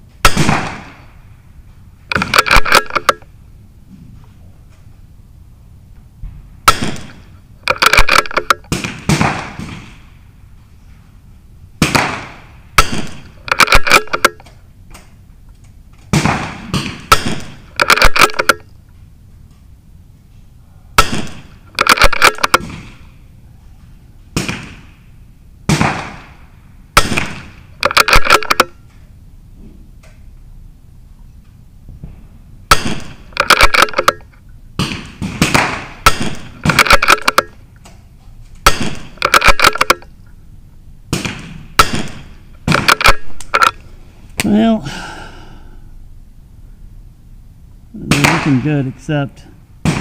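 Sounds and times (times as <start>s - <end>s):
rifle shots echoing: 0.2s - 1.1s, 2.1s - 3.3s, 6.6s - 10.1s, 11.8s - 14.5s, 16.1s - 18.6s, 21.0s - 23.1s, 25.7s - 28.8s, 32.7s - 37.6s, 38.6s - 40.1s, 41.1s - 43.8s, 48.0s - 49.0s.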